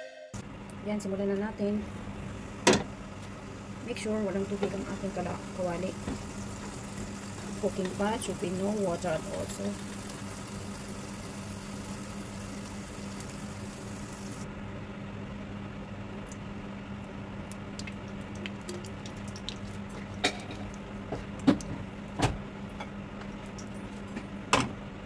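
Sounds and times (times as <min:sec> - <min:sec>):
steady low hum: 0:00.4 - 0:25.0
heating oil ticking: 0:17.5 - 0:20.0
oil pouring into pot: 0:17.8 - 0:20.8.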